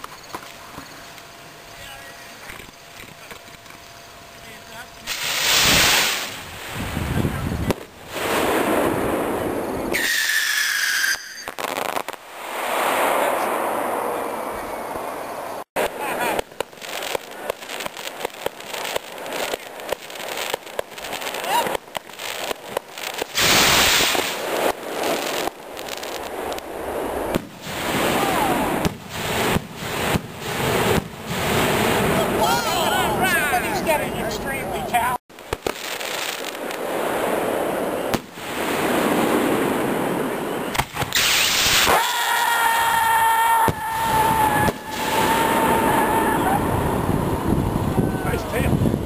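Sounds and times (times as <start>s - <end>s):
firework rocket launching hiss: 5.0s - 32.3s, 35.4s - 49.0s
skyrocket whoosh and hiss: 5.1s - 7.2s, 8.0s - 15.3s, 23.2s - 32.0s, 41.0s - 42.0s.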